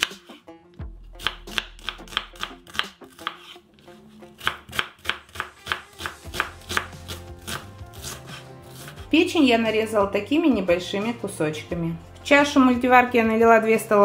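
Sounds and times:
knife dicing onion on wooden board: 0:00.0 - 0:00.4, 0:01.2 - 0:03.6, 0:04.4 - 0:09.1.

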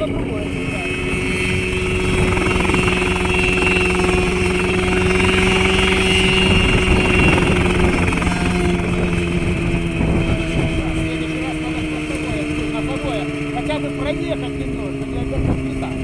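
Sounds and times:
helicopter engine drone: 0:00.0 - 0:16.0
rotor pulsing: 0:00.0 - 0:16.0.

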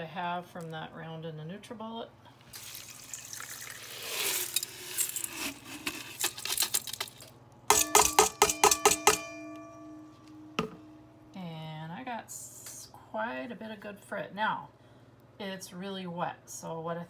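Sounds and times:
water and glass pouring: 0:02.5 - 0:05.7
grains rattling on metal: 0:02.6 - 0:09.4
cup tapping metal basket: 0:07.7 - 0:11.0.

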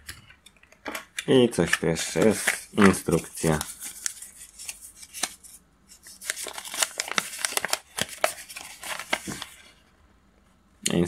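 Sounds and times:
paper rustling and crackling: 0:01.6 - 0:09.8.

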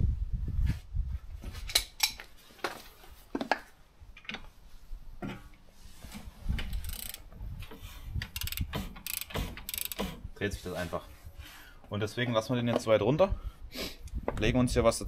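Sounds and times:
metallic clinks of socket and ratchet: 0:06.7 - 0:07.2, 0:08.3 - 0:10.0.

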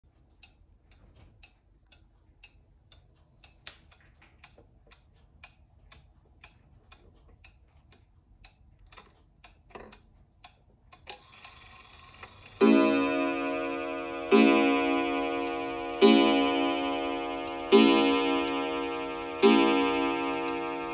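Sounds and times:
clock ticking faintly: 0:00.0 - 0:20.9
clock hand clicks: 0:00.1 - 0:20.9.

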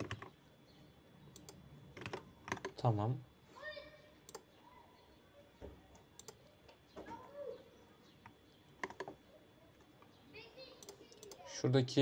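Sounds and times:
keyboard keystrokes: 0:00.0 - 0:00.3, 0:06.2 - 0:06.4, 0:08.8 - 0:09.2
computer mouse clicks: 0:00.0 - 0:00.4, 0:01.3 - 0:02.8, 0:04.3 - 0:04.5, 0:05.9 - 0:06.8, 0:08.2 - 0:09.2, 0:10.8 - 0:11.4.

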